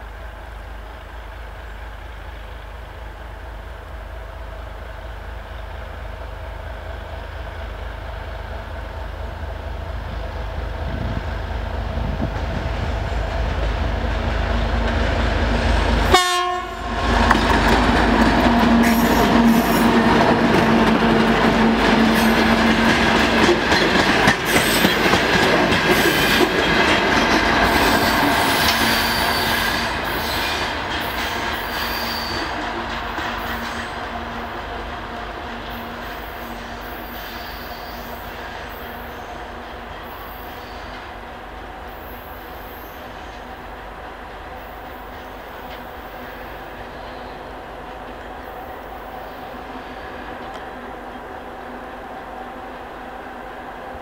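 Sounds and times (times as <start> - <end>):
diesel locomotive engine: 0.0 - 54.0
locomotive horn toot: 16.1 - 17.2.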